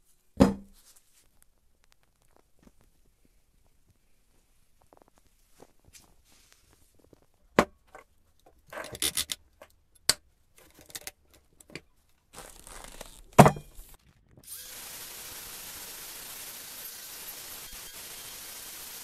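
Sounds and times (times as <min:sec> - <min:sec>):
angle grinder grinding metal: 0:14.4 - 0:19.0.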